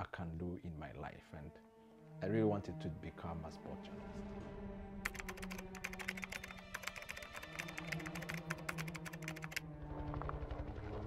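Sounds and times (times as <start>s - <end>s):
keyboard key clicks: 5.1s - 9.6s.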